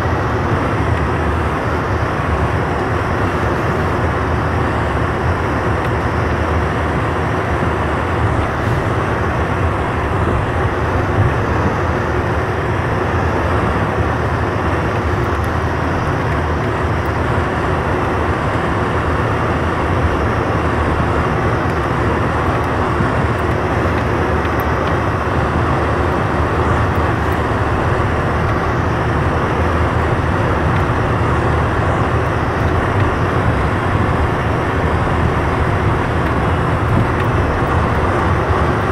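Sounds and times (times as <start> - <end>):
vehicle driving on snowy dirt road: 0.0 - 38.9.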